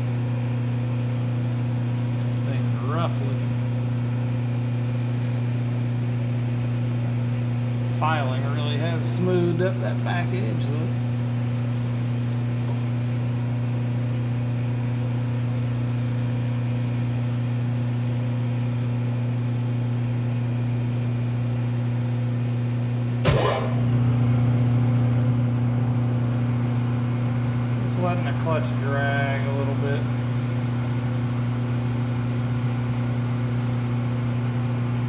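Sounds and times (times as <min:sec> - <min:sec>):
sharp knock: 0:23.2 - 0:23.8
metal lathe humming: 0:25.5 - 0:35.0.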